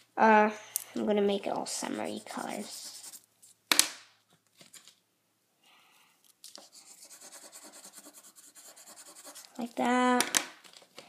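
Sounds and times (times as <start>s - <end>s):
crayon scribbling on paper: 1.7s - 3.2s, 6.6s - 9.8s.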